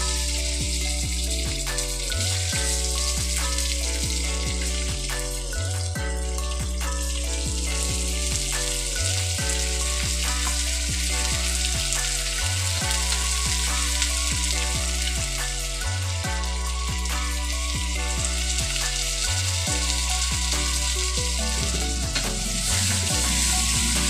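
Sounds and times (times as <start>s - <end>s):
background music with bass line: 0.0s - 24.0s
chicken sizzling in oil: 6.9s - 24.0s.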